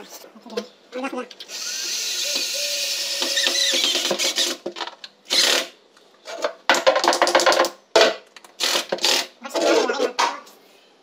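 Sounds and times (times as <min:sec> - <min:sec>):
cordless drill whirring: 0:01.5 - 0:04.6.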